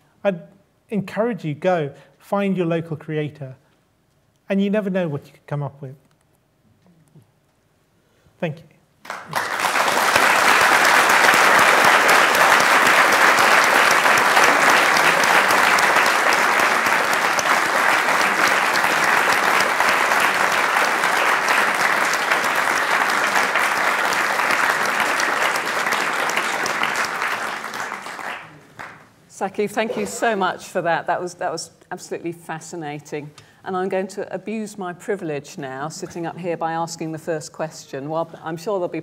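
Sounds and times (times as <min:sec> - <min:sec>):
audience applauding: 0:09.0 - 0:29.1.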